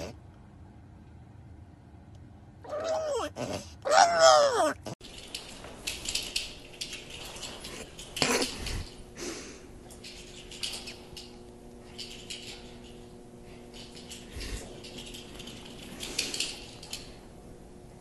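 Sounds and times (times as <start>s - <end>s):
faint steady hum: 0.0s - 18.0s
dog tags jingling: 5.0s - 9.0s, 9.9s - 17.3s.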